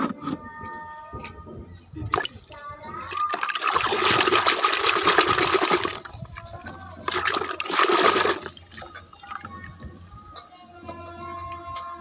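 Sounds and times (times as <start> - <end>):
water sloshing in plastic bucket: 2.1 - 9.8.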